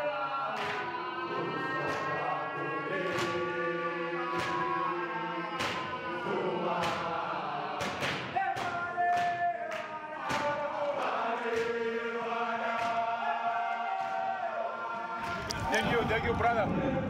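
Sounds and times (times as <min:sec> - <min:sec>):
men chanting in chorus: 0:00.0 - 0:17.0
sharp rhythmic claps: 0:00.5 - 0:01.1, 0:01.7 - 0:14.6.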